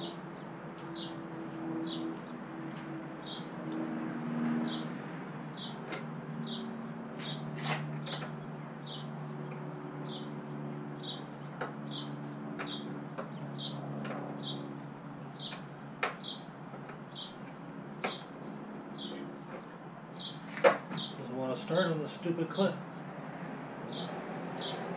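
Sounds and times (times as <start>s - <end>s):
small bird chirping: 11.0s - 13.8s, 14.4s - 16.5s.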